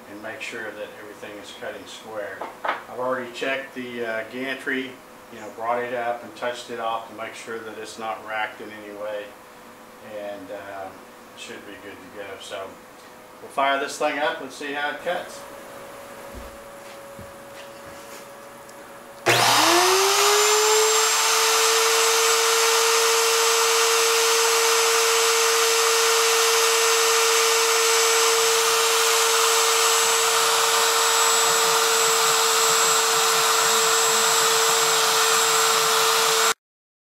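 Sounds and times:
router motor whining: 19.2s - 36.6s.

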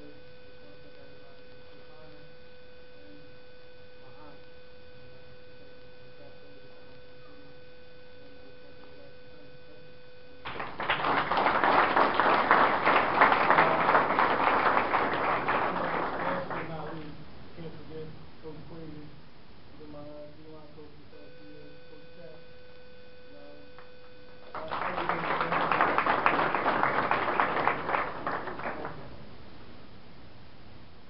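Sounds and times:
faint steady electronic tone: 0.0s - 31.0s
quiet room murmur: 0.0s - 31.0s
crowd applauding: 10.4s - 17.1s, 24.3s - 29.1s.

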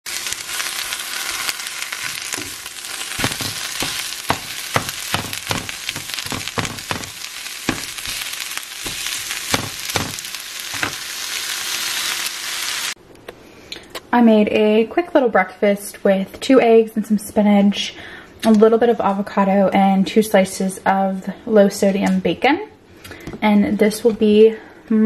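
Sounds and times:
eggs sizzling in a frying pan: 0.1s - 13.0s
plastic spatula tapping a pan: 3.2s - 8.0s.

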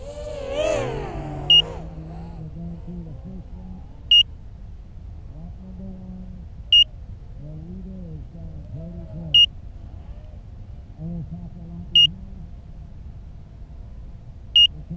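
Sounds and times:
racing drone motors whining: 0.0s - 4.3s
drone locator beeper beeping: 1.5s - 1.7s, 14.6s - 14.8s.

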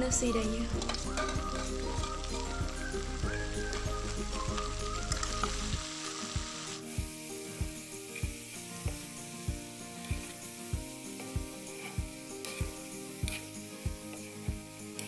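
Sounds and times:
food sizzling in hot oil: 0.0s - 15.0s
metal spatula scraping a wok: 0.7s - 2.6s, 9.9s - 14.4s.

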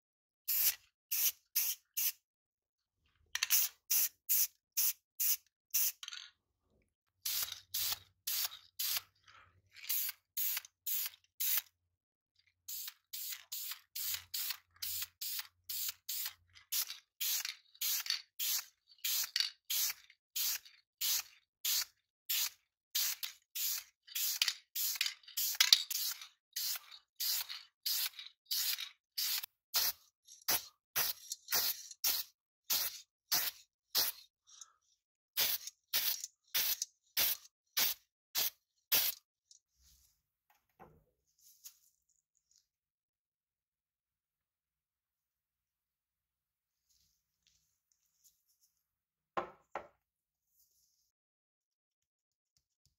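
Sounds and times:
spray paint hissing in bursts: 0.5s - 2.2s, 3.4s - 6.0s, 7.2s - 9.2s, 9.8s - 11.7s, 12.7s - 34.3s, 35.4s - 39.3s.

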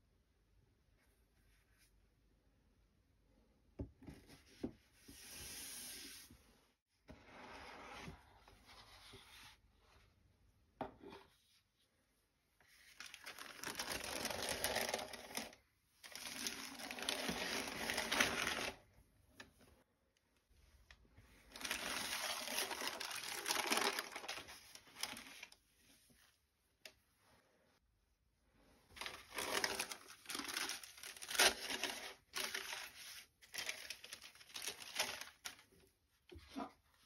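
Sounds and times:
tissue paper crinkling: 12.8s - 18.8s, 21.5s - 25.6s, 28.9s - 35.8s.

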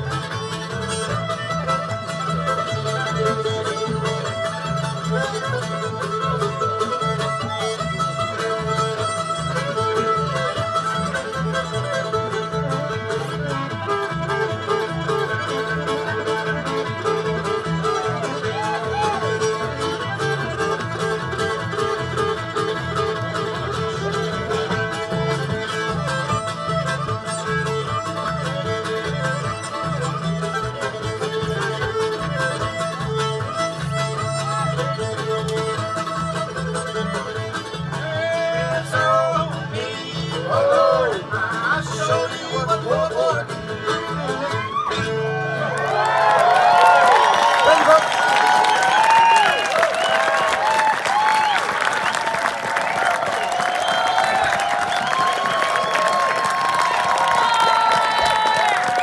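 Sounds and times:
strummed guitar: 0.0s - 46.0s
upright bass notes: 0.0s - 46.0s
fiddle playing tune: 0.0s - 59.0s.

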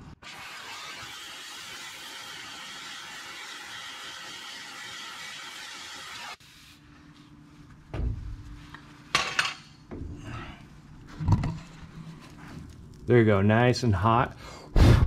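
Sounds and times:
gas torch flame hissing: 0.0s - 6.7s
dull thump: 7.9s - 8.4s.

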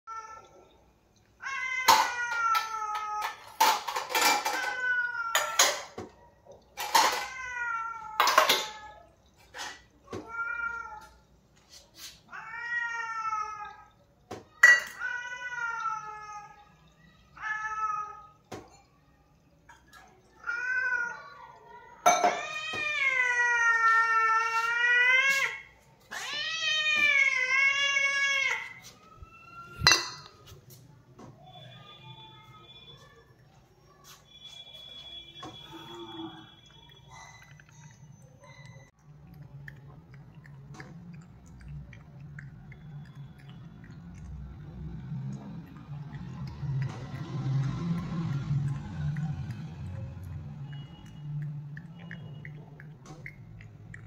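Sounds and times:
cat meowing: 1.4s - 6.0s, 10.1s - 11.2s, 12.3s - 18.4s, 20.3s - 30.4s.

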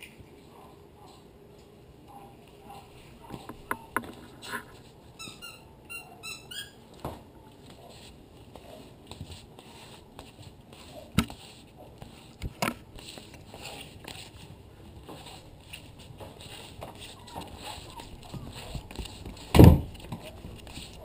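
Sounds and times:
short high squeaks: 3.8s - 6.8s
puppy paws pattering on wood: 7.0s - 21.0s.

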